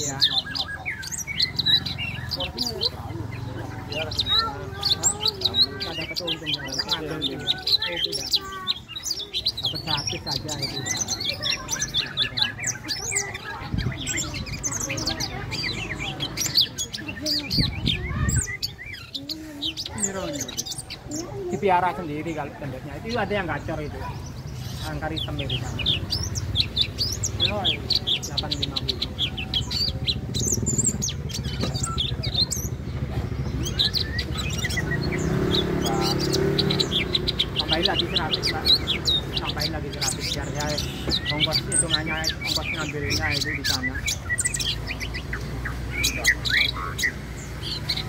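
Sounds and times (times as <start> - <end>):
bird singing chirps and whistles: 24.7 - 32.8, 33.4 - 48.0.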